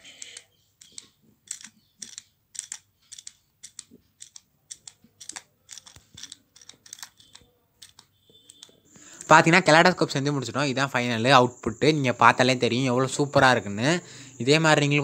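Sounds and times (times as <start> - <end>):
glass pieces clicking in a tube: 0.1 - 8.8.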